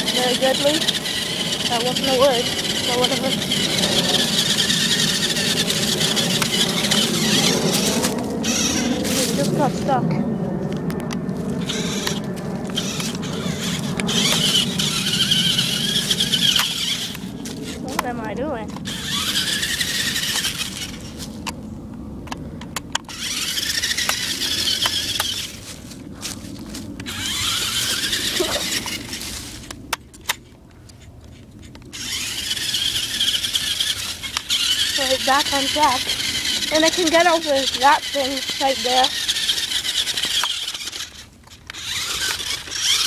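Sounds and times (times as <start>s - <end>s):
toy truck motor whining: 0.0s - 9.9s, 11.6s - 21.3s, 22.8s - 25.7s, 27.0s - 30.4s, 31.0s - 43.0s
truck in dry leaves: 0.0s - 22.2s, 23.1s - 43.0s
sharp clicks: 10.8s - 17.2s, 38.1s - 43.0s.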